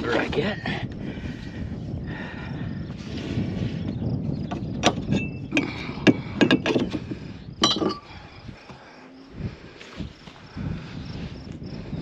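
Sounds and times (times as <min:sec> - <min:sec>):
metallic clanks and clinks: 0:04.8 - 0:07.0, 0:07.6 - 0:08.1.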